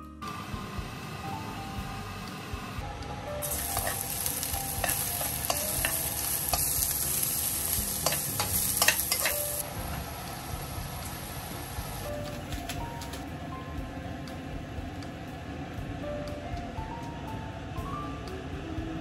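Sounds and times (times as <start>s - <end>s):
food sizzling in a pan: 3.4s - 12.1s.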